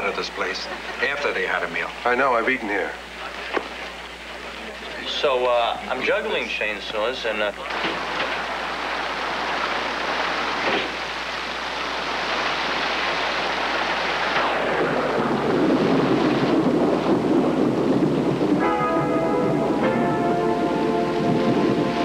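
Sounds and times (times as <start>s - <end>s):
heavy rain hissing: 0.0s - 22.0s
low thunder rumble: 14.2s - 22.0s.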